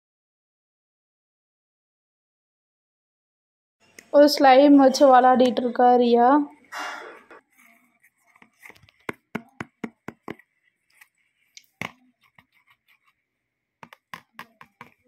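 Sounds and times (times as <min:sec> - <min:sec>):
plastic tub clicking and tapping: 0:08.7 - 0:10.4, 0:13.8 - 0:15.0.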